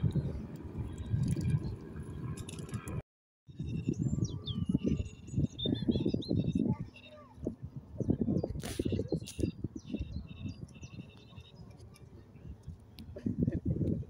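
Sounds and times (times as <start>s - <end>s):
wind buffeting microphone: 0.0s - 14.0s
small bird chirping: 3.6s - 7.4s, 8.0s - 12.0s.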